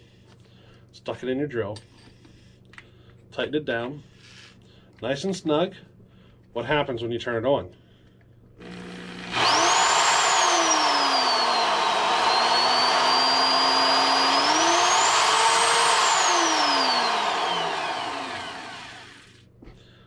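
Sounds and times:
electric drill motor whine: 0:08.6 - 0:19.4.

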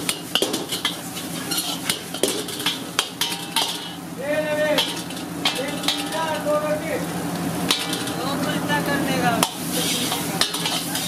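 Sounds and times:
metal utensils scraping a wok: 0:00.0 - 0:04.0, 0:04.8 - 0:06.5, 0:07.6 - 0:08.6, 0:09.4 - 0:11.0.

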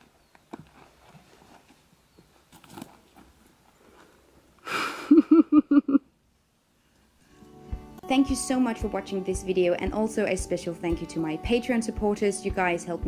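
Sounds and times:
soft footfalls on forest path: 0:00.0 - 0:04.2
person laughing: 0:04.7 - 0:06.1.

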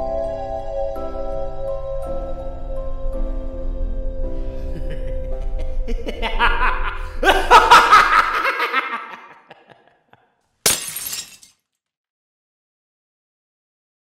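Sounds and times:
ambient music with low drone: 0:00.0 - 0:09.1
loud burst of laughter: 0:04.6 - 0:10.1
glass breaking crack: 0:10.7 - 0:11.5.

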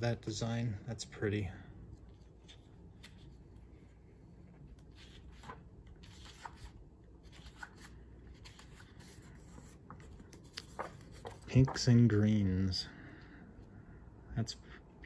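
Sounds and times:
paper crinkles: 0:04.6 - 0:11.9
paper sheet rustling: 0:04.6 - 0:12.0.

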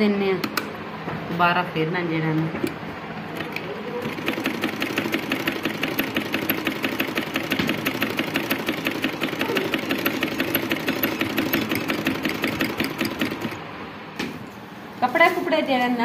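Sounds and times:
sewing machine clattering: 0:03.4 - 0:13.6.

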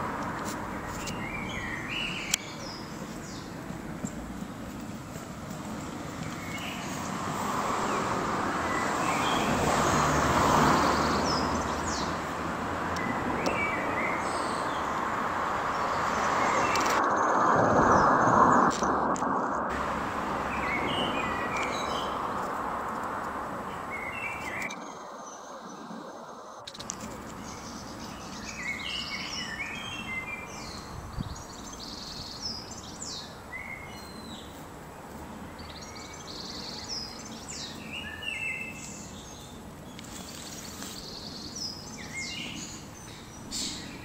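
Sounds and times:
road traffic passing: 0:00.0 - 0:44.0
bird chirps: 0:27.3 - 0:34.6.

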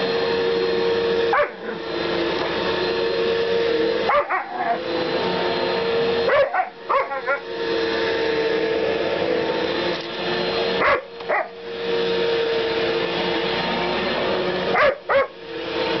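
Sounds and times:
electric sweeper humming: 0:00.0 - 0:16.0
dog yipping: 0:01.3 - 0:01.8, 0:04.1 - 0:04.9, 0:06.3 - 0:07.5, 0:10.8 - 0:11.6, 0:14.7 - 0:15.4.

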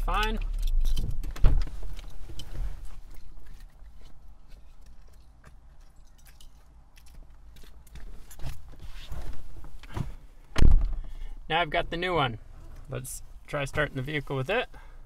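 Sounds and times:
handling clicks and rustles: 0:00.0 - 0:11.0.

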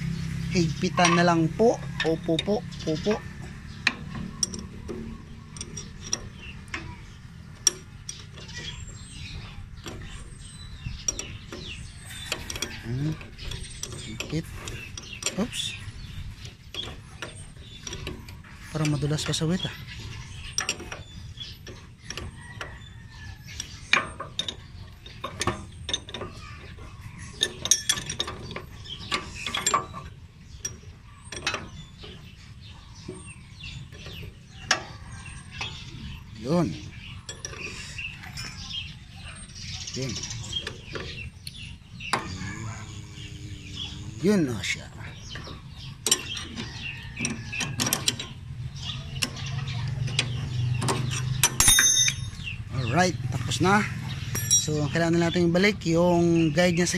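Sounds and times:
wrench clinking on a bolt: 0:00.9 - 0:03.2, 0:03.8 - 0:15.6, 0:16.7 - 0:32.3, 0:37.0 - 0:39.6, 0:44.6 - 0:55.4.

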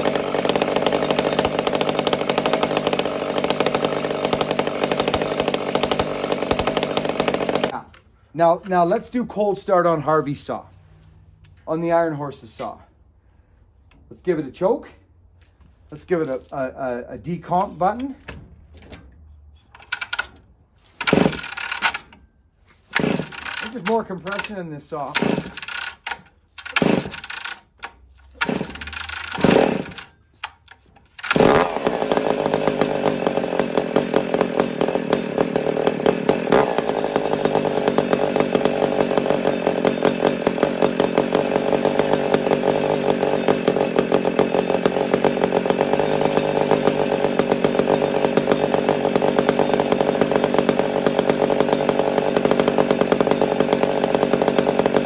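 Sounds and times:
chainsaw engine running: 0:00.0 - 0:08.0, 0:19.8 - 0:55.0
chainsaw starter rope pulls: 0:00.0 - 0:09.0, 0:15.8 - 0:55.0.

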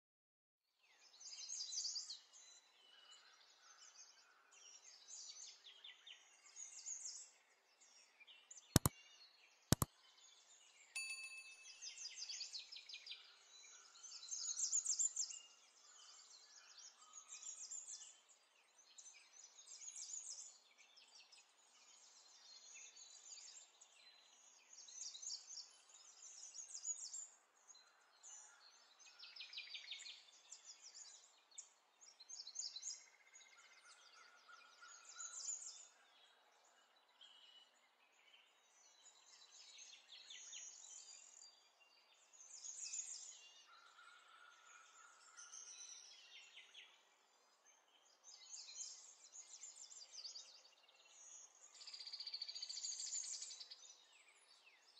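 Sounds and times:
small birds chirping: 0:04.5 - 0:11.4, 0:13.1 - 0:54.9
short ding: 0:11.0 - 0:11.9.

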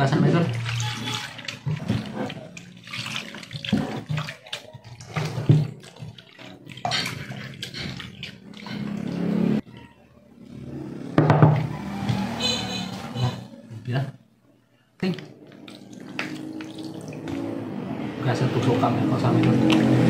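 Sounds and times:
running water: 0:00.0 - 0:09.6, 0:15.0 - 0:20.0
water splashing: 0:00.0 - 0:09.6, 0:15.0 - 0:20.0.

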